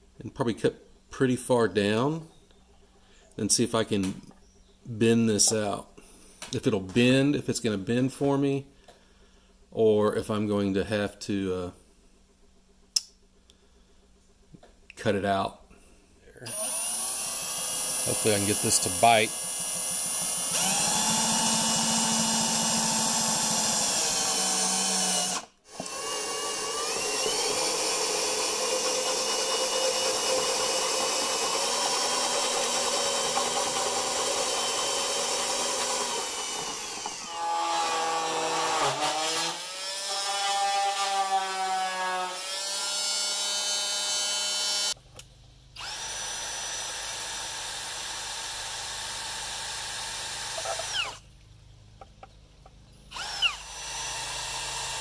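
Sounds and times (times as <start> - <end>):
cordless drill boring through plastic: 16.5 - 45.0, 45.8 - 51.2, 53.1 - 55.0.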